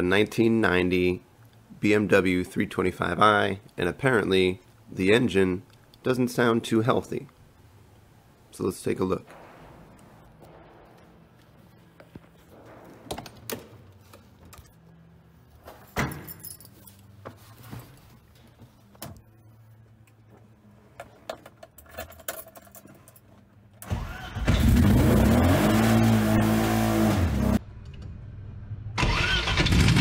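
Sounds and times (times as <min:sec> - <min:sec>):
knocks: 0:09.3 - 0:11.4
keys jangling: 0:15.8 - 0:17.1, 0:21.7 - 0:23.4
car engine cranking and revving: 0:23.8 - 0:27.6, 0:29.0 - 0:30.0.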